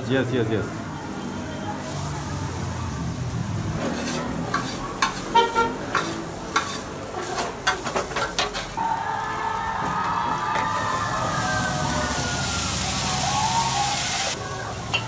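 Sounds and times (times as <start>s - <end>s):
noodles sizzling in a pan: 1.7s - 15.0s
utensil clanking against pan: 3.8s - 8.8s.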